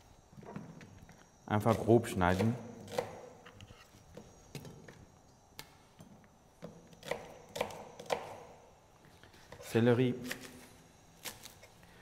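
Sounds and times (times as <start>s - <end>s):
knife cutting onion on plastic board: 1.5s - 5.0s, 6.6s - 8.5s, 9.5s - 11.8s.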